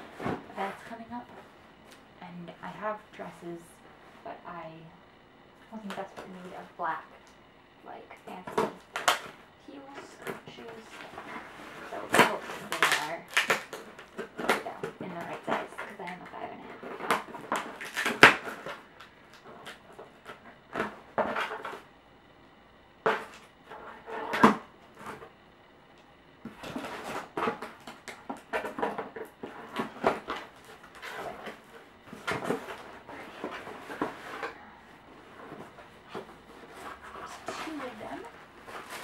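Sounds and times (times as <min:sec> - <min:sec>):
cardboard and packing rustling: 0:00.0 - 0:04.4, 0:08.3 - 0:21.9, 0:26.4 - 0:39.0.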